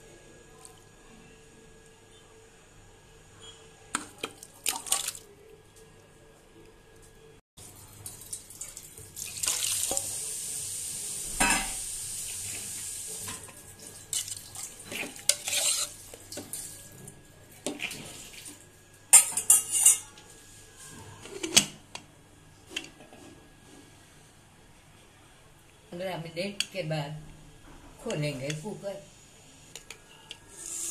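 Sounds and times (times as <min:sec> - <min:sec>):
water pouring into pot: 0:04.3 - 0:05.3, 0:07.6 - 0:13.1
spoon scraping metal pot: 0:14.2 - 0:16.0, 0:19.1 - 0:20.2, 0:29.8 - 0:30.9.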